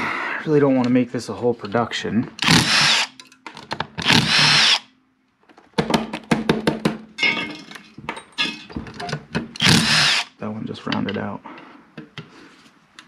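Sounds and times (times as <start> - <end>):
cordless drill motor whining: 2.4 - 3.1, 4.0 - 4.8, 9.6 - 10.3.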